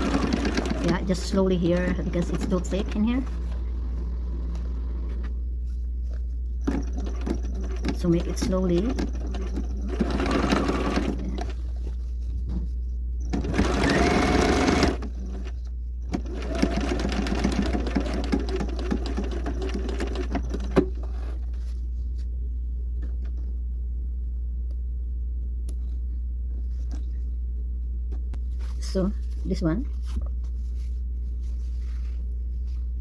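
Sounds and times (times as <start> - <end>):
sewing machine stitching: 0.0 - 5.1, 6.6 - 11.6, 13.3 - 21.4
low steady hum: 0.0 - 33.0.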